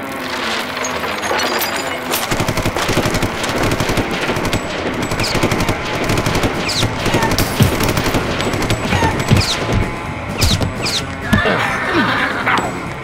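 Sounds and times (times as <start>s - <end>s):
machine-gun fire: 2.2s - 11.0s.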